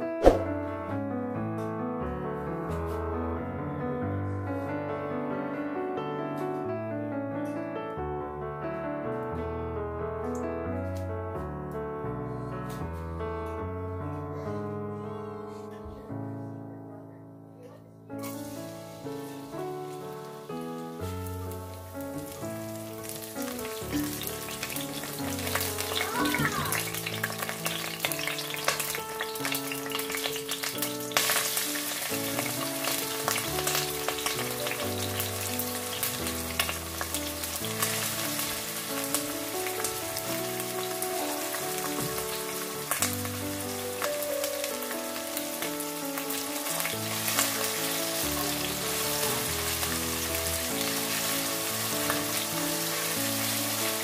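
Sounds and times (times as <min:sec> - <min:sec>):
background music: 0:11.8 - 0:54.0
garlic and onion sizzling in oil: 0:18.2 - 0:54.0.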